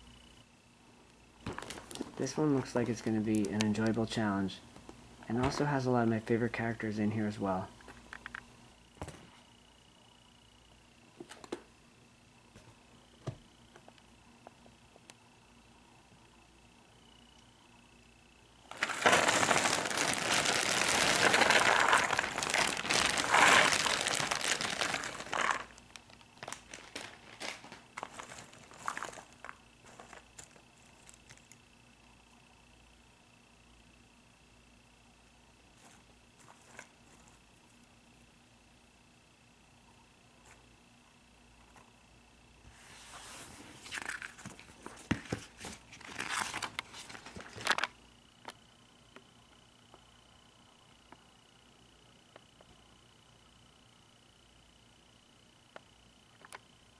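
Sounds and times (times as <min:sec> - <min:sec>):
puzzle pieces rattling: 0:18.7 - 0:25.8
plastic bag crinkling: 0:18.7 - 0:31.5, 0:45.8 - 0:48.0.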